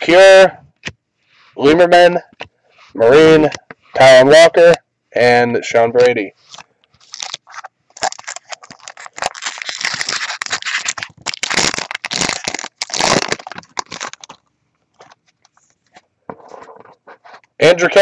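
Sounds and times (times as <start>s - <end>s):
wrapper tearing and crinkling: 6.5s - 15.2s.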